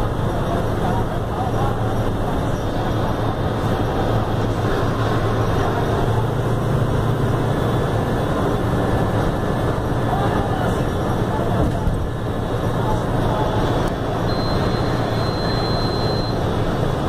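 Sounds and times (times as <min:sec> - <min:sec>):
bus diesel engine running: 0:00.0 - 0:17.0
tyre and road noise: 0:00.0 - 0:17.0.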